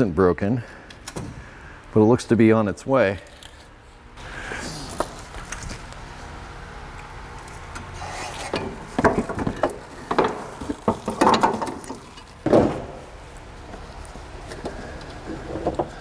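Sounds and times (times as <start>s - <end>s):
metal knocks and clunks: 8.6s - 13.0s.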